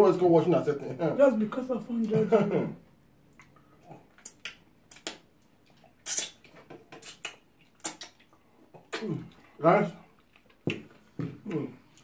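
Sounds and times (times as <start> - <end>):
wet eating sounds: 3.2 - 12.0.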